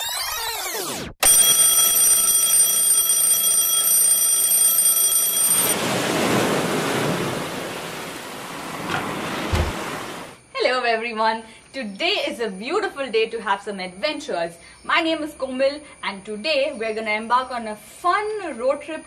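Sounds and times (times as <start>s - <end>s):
alarm clock ringing: 1.2s - 5.8s
broad rushing noise: 5.7s - 10.4s
low thump: 8.8s - 10.2s.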